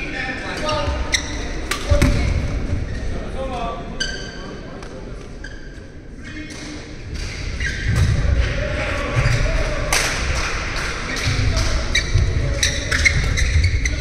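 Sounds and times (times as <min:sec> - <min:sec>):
shoe squeaks: 0:00.5 - 0:01.6, 0:03.9 - 0:04.6, 0:05.4 - 0:06.4, 0:11.9 - 0:14.0.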